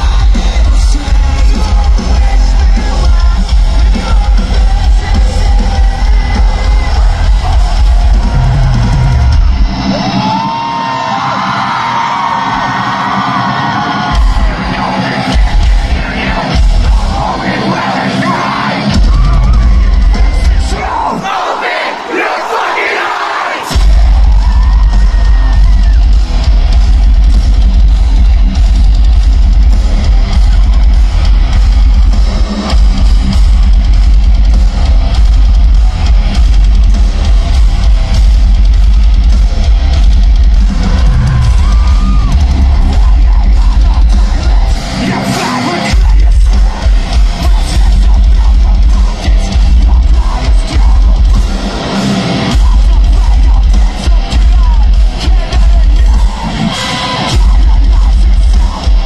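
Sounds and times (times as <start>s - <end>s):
metalcore band playing live: 0.0s - 59.0s.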